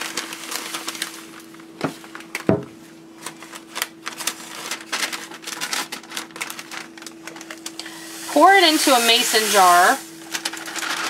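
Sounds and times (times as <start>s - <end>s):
faint steady hum: 0.0s - 11.0s
parchment paper crinkling: 0.0s - 11.0s.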